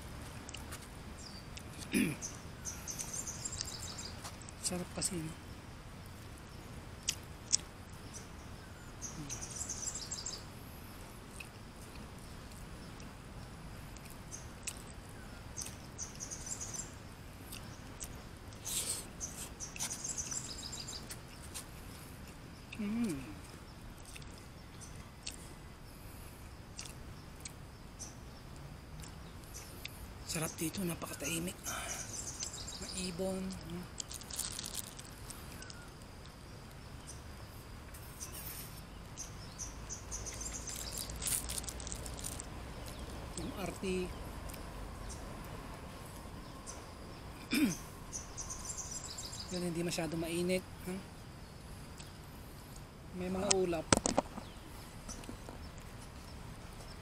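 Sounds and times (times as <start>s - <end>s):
low outdoor background: 0.0s - 57.0s
steady high hiss: 0.0s - 57.0s
small birds chirping: 0.2s - 57.0s
insects buzzing: 0.8s - 57.0s
eating noise: 17.5s - 24.5s, 33.6s - 35.8s, 40.3s - 43.5s.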